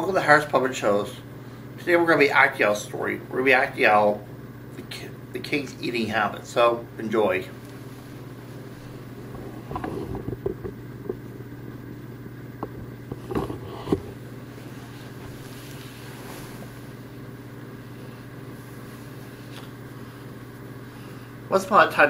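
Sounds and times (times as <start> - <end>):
low electrical hum: 0.0 - 22.0
shuffling movement: 7.4 - 10.8, 13.1 - 21.4.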